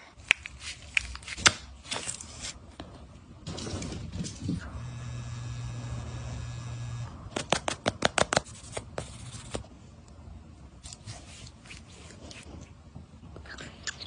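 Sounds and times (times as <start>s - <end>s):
massage device humming: 4.6s - 7.6s
sharp clicks and taps: 7.3s - 8.5s
hands rubbing: 10.8s - 12.6s.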